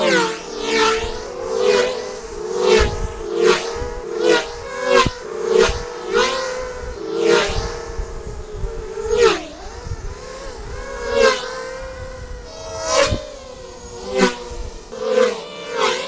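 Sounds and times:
quadcopters whining past: 0.0s - 16.0s.

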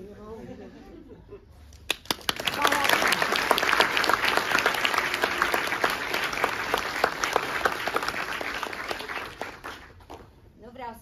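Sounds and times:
audience applause: 1.9s - 10.3s.

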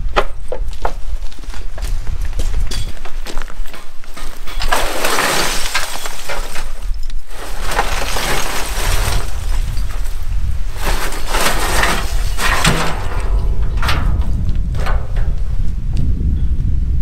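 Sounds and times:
concrete rubble clattering from wheelbarrow: 3.6s - 15.8s.

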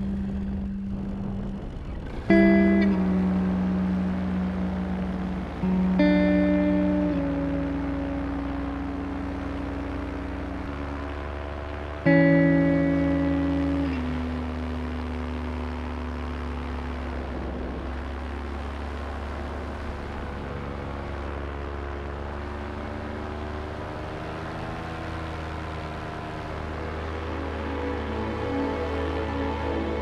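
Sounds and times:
paramotor engine and propeller: 0.0s - 30.0s.

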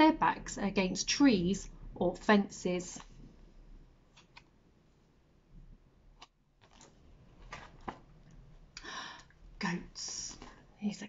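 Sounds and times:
book pages turning: 4.1s - 4.5s, 6.2s - 8.4s.

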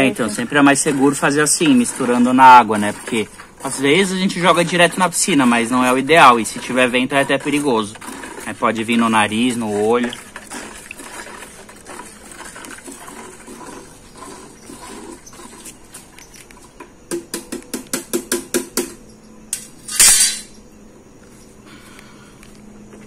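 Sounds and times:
water sloshing in bucket: 0.0s - 16.8s
stick knocking against bucket: 16.8s - 19.0s.

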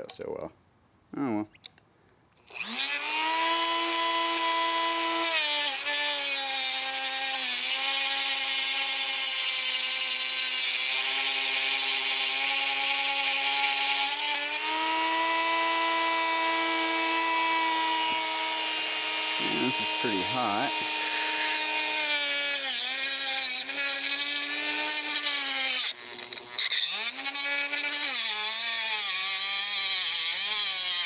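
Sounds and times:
rotary tool whining: 2.4s - 31.0s
hissing grind of electrode: 19.3s - 21.7s.

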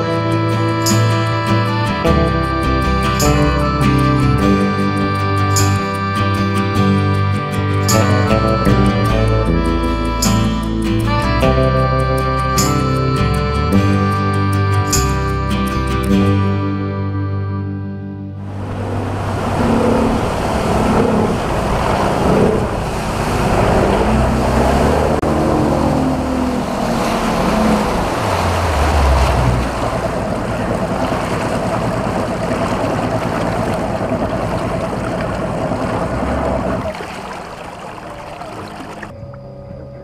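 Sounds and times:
rushing water: 0.0s - 15.2s, 18.4s - 39.2s
outboard motor whining: 0.0s - 40.0s
rushing wind: 18.4s - 39.2s.

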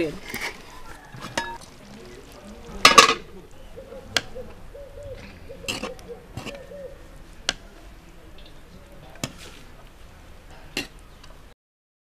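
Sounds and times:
bird calling low notes: 3.3s - 7.3s.

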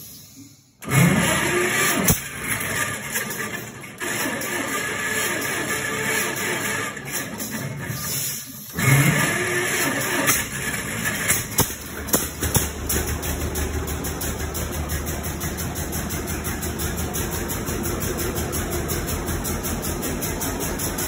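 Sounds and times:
tractor engine idling with pops: 10.2s - 21.0s.

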